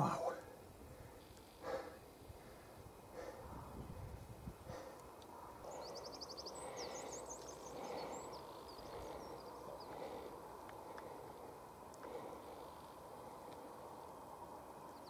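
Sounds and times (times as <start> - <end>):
wind on microphone: 3.2 - 4.9
small bird singing: 4.7 - 10.4, 14.8 - 15.0.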